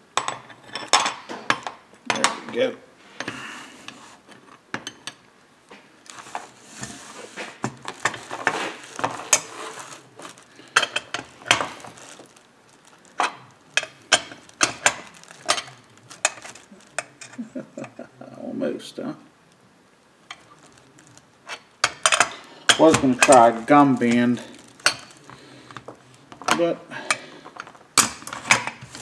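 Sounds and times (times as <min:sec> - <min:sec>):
rustling: 0:05.8 - 0:17.6, 0:20.2 - 0:26.6, 0:27.2 - 0:29.0
metal tools clinking on metal: 0:21.5 - 0:25.2.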